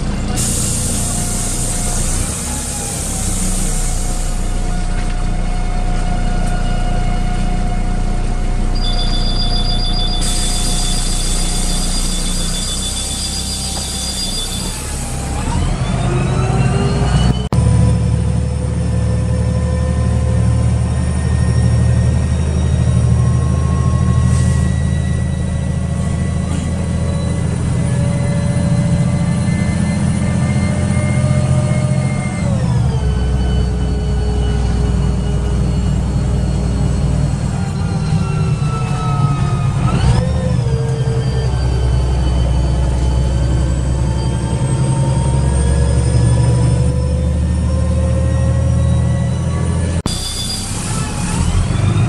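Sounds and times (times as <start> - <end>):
bus engine: 0.0 - 52.0
two-tone beeping signal: 8.8 - 14.8.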